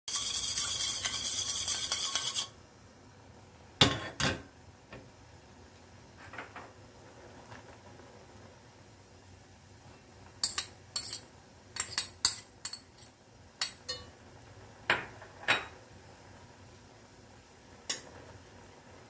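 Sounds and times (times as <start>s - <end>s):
chopsticks beating eggs in metal bowl: 0.1s - 2.5s
stirring in a pot: 0.1s - 2.5s, 10.4s - 14.1s.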